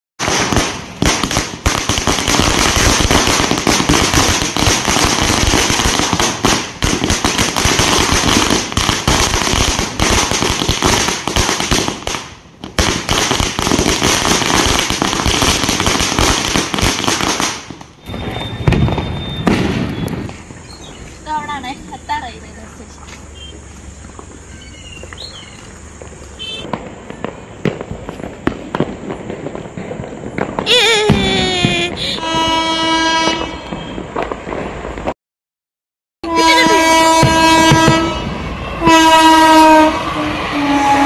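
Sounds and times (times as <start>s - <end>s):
firecrackers crackling: 0.2s - 35.2s, 36.3s - 41.0s.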